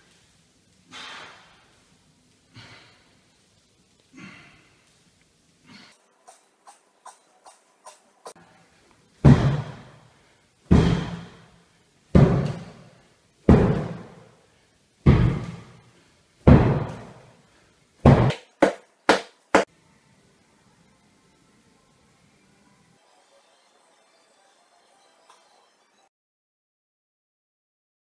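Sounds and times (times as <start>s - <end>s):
medicine ball thudding on floor: 9.2s - 9.8s, 10.7s - 11.2s, 12.2s - 12.7s, 13.5s - 14.1s, 15.0s - 15.6s, 16.5s - 17.2s, 18.1s - 19.3s.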